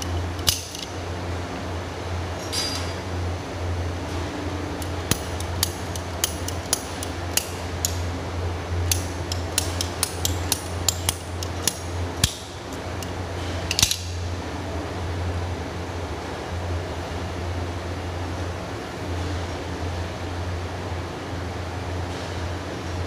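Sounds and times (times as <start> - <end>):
ratchet pipe cutter clicking: 0.0 - 0.9, 4.8 - 8.1, 8.8 - 14.2
steady low hum: 0.0 - 23.0.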